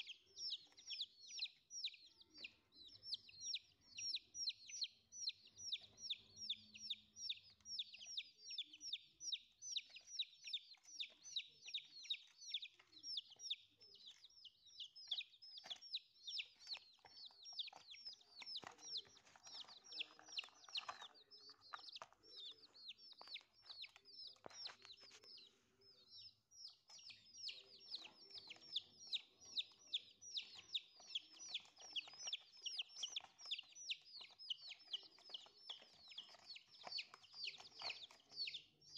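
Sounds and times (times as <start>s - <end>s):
chicks peeping: 0.0s - 38.9s.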